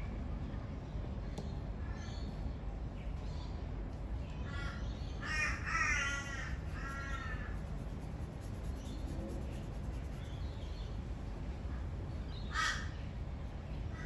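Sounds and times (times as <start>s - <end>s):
low background rumble: 0.0s - 14.0s
crow cawing: 4.5s - 7.5s, 12.5s - 13.0s.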